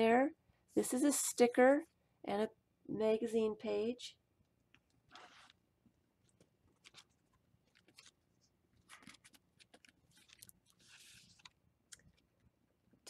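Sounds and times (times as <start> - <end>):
paper pages rustling: 5.1 - 5.6, 6.2 - 12.3.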